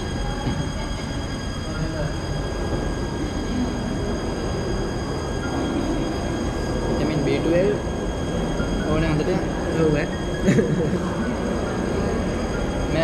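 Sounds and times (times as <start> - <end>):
dining hall rumble: 0.0 - 13.0
indistinct voices: 0.0 - 13.0.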